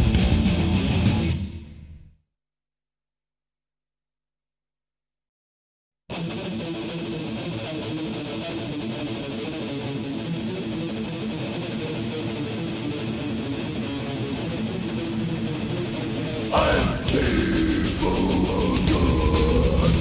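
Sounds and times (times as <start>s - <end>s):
electric guitar playing alone: 0.0s - 1.9s, 6.1s - 20.0s.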